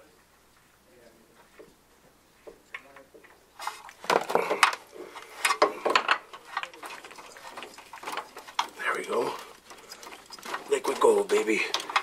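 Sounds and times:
oil filter clicking and scraping: 0:02.5 - 0:12.0.

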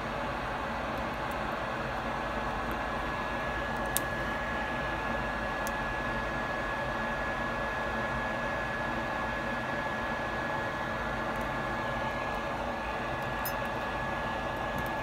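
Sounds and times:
fan-like hiss with high whine: 0:00.0 - 0:15.0
small connector clicks: 0:03.8 - 0:04.1.

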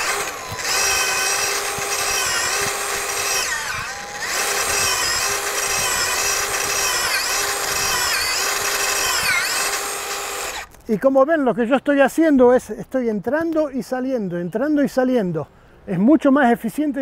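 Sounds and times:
drill motor whining: 0:00.0 - 0:10.7.

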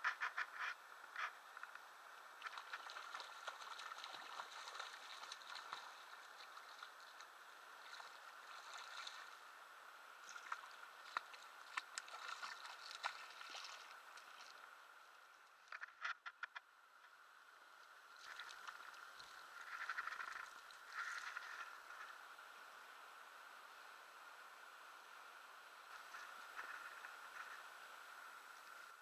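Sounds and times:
faint steady hiss: 0:00.0 - 0:29.0
fish splashing in water: 0:02.4 - 0:07.2, 0:10.2 - 0:14.6.

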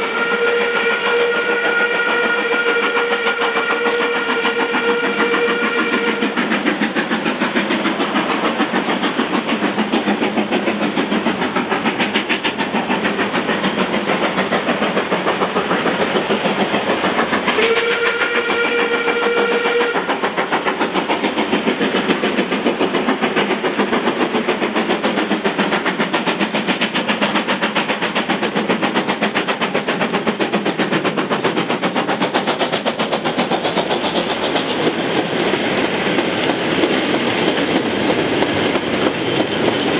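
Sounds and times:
steam whistle: 0:00.0 - 0:06.4, 0:17.5 - 0:20.3
steam locomotive exhaust beats: 0:00.0 - 0:39.9.

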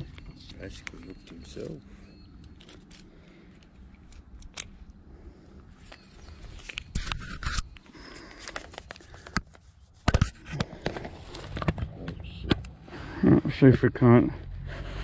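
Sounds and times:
handling clicks and scrapes: 0:00.0 - 0:05.0, 0:05.7 - 0:12.7.

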